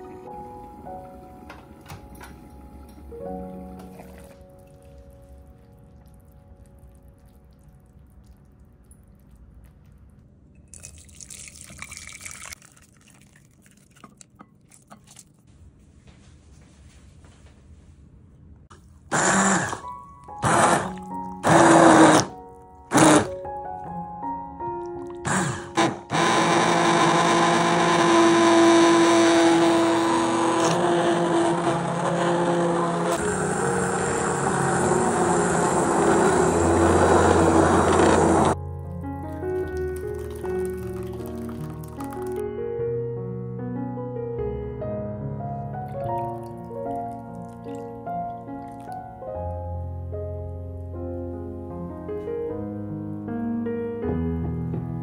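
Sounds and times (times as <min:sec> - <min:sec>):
thick puree churning: 0:02.6 - 0:15.5, 0:18.7 - 0:23.4, 0:24.8 - 0:42.4, 0:45.9 - 0:49.2
drips and soft plops: 0:02.8 - 0:15.5, 0:38.8 - 0:42.4, 0:45.9 - 0:49.2
liquid splashing into bowl: 0:03.8 - 0:15.4, 0:39.3 - 0:42.4, 0:45.9 - 0:49.0
immersion blender motor whine: 0:19.1 - 0:22.3, 0:22.9 - 0:23.3, 0:25.3 - 0:38.6.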